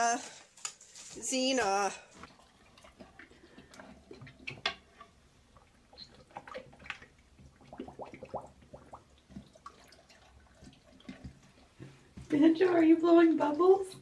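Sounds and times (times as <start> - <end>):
dog blowing bubbles in water: 2.2 - 11.8.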